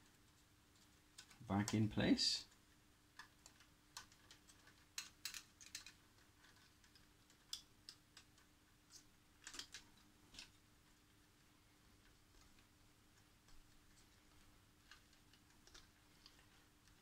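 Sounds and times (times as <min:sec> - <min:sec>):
faint steady hum: 0:00.0 - 0:17.0
plastic connectors clicking: 0:03.2 - 0:10.6, 0:14.8 - 0:17.0.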